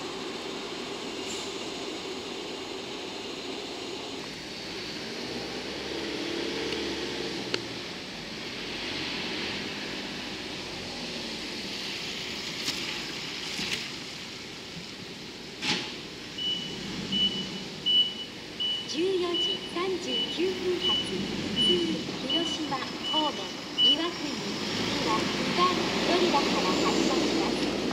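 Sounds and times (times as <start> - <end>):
locomotive running hum: 0.0 - 8.4, 16.4 - 27.9
high electronic beeps: 16.4 - 24.4.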